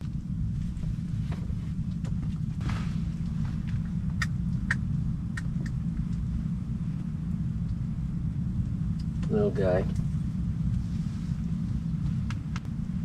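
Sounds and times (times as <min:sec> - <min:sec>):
steady low rumble: 0:00.0 - 0:13.0.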